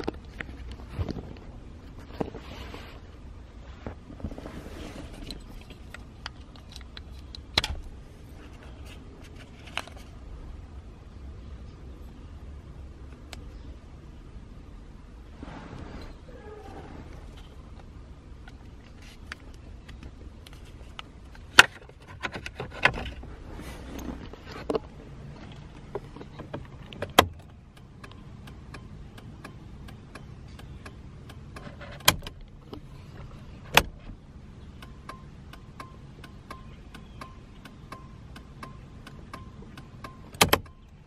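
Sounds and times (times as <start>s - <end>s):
turn-signal flasher clicking: 34.6s - 41.0s.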